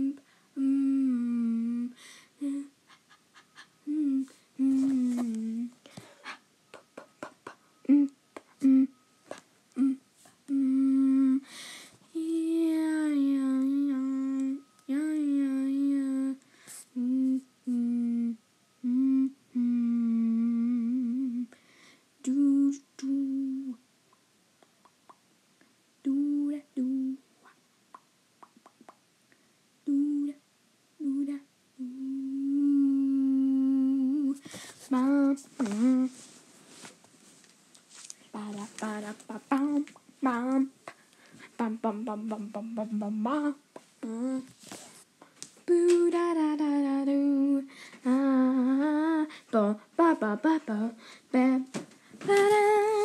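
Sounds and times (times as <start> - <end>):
person humming: 0.0 - 11.5, 12.1 - 21.6, 22.2 - 23.8, 26.0 - 27.6, 29.8 - 30.4, 31.0 - 36.2, 38.3 - 44.5, 45.7 - 51.6.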